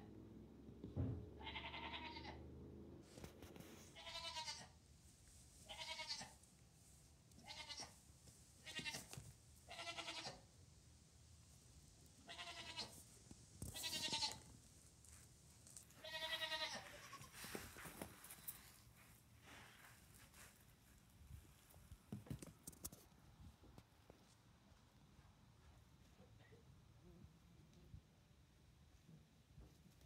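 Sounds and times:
goat kid bleating: 1.4s - 2.4s, 3.9s - 4.8s, 5.6s - 6.4s, 7.4s - 8.0s, 8.6s - 10.4s, 12.2s - 13.0s, 13.7s - 14.5s, 16.0s - 17.6s.

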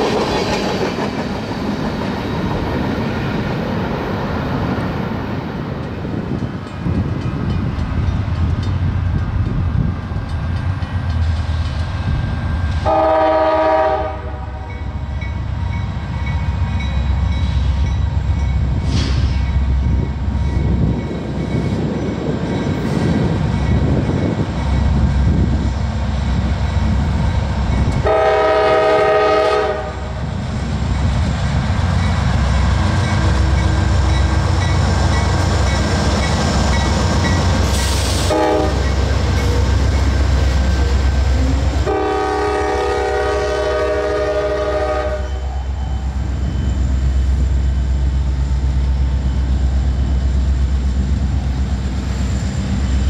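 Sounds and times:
freight train rumbling: 0.0s - 53.0s
train air horn blasts: 12.8s - 14.8s, 28.0s - 30.2s, 37.7s - 39.0s, 41.4s - 45.7s.

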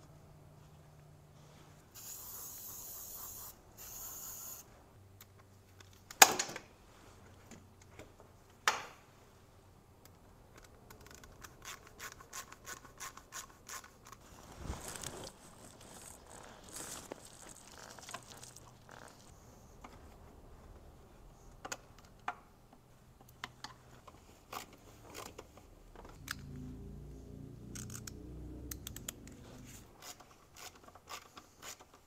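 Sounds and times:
aerosol spray hissing: 2.0s - 4.6s.

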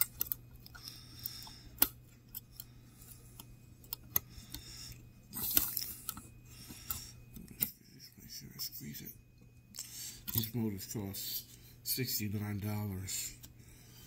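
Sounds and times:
metal tweezers clicking and scraping: 0.0s - 2.7s
hard breathing: 0.6s - 7.6s, 9.7s - 10.4s, 13.5s - 14.0s.

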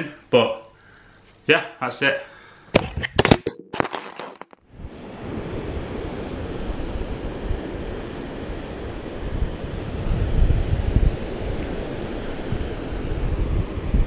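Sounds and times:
surf on a beach: 4.7s - 14.0s
wind buffeting microphone: 4.7s - 14.0s.

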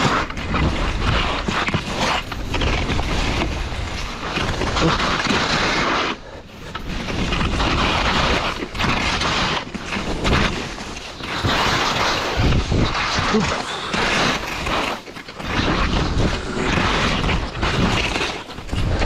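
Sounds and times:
skis hissing over snow: 0.0s - 19.0s
wind buffeting microphone: 12.2s - 13.5s.

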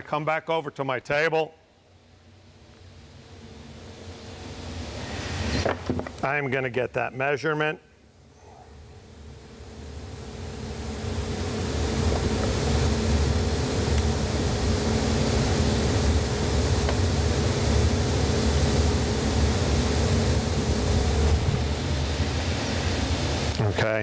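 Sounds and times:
shop machine running: 10.8s - 24.0s.

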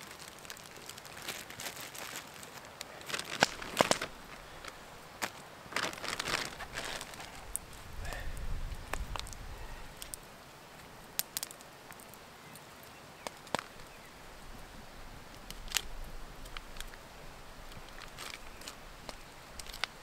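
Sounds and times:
campfire crackling and popping: 0.0s - 20.0s
faint open air hiss: 0.0s - 20.0s.

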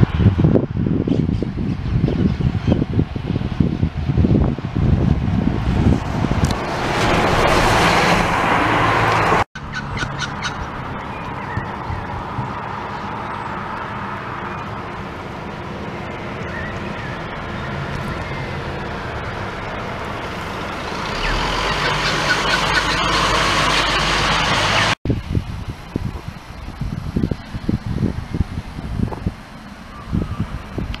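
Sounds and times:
bus engine hum: 0.0s - 31.0s
tyres hissing on wet road: 17.7s - 30.8s.

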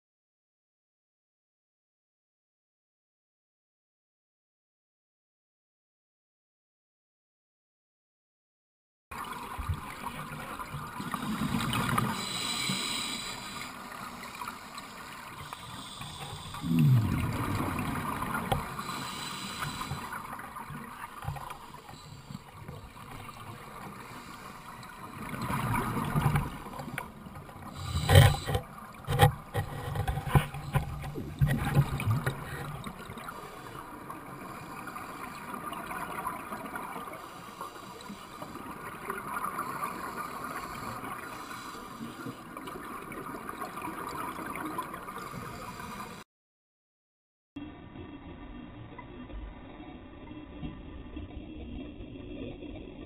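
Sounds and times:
regulator bubbles gurgling: 9.2s - 46.2s, 47.6s - 53.0s
underwater water wash: 9.2s - 46.2s.

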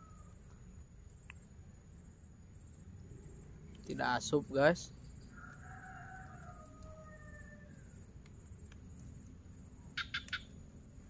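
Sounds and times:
distant rooster crowing: 0.0s - 0.4s, 5.2s - 8.1s
faint outdoor background: 0.0s - 11.0s.

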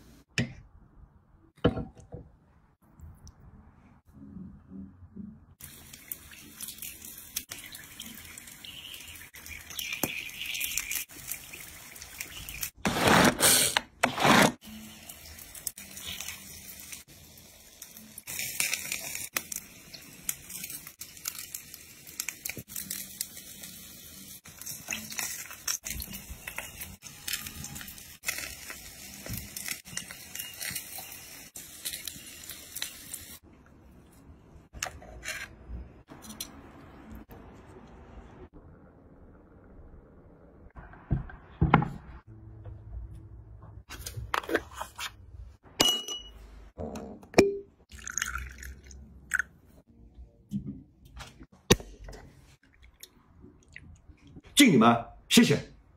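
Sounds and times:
food sizzling on a grill: 14.6s - 33.4s.

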